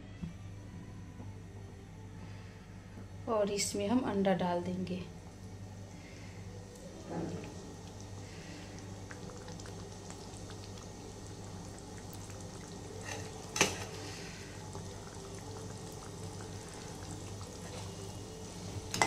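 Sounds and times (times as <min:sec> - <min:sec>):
curry sizzling in a pan: 0:06.6 - 0:19.0.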